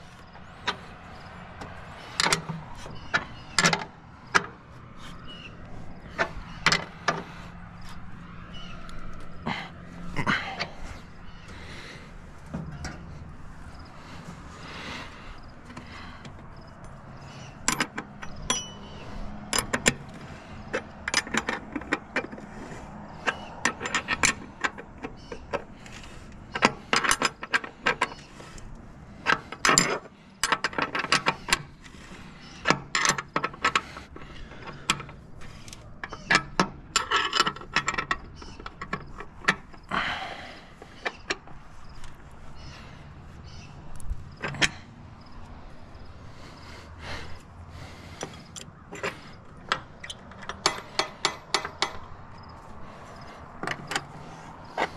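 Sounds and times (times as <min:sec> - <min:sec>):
wrenches clinking on metal: 0:00.0 - 0:54.9.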